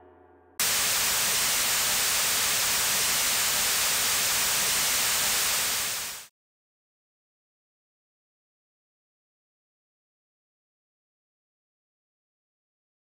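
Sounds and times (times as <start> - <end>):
television static hiss: 0.6 - 6.3.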